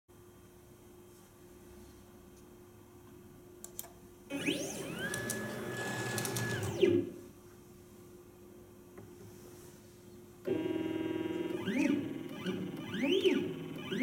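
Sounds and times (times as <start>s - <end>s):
motor whine: 4.3s - 7.0s.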